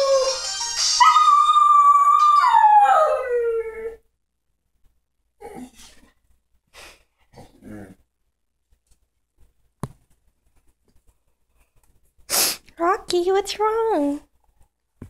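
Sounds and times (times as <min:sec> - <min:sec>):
dog howling: 0:01.0 - 0:04.0.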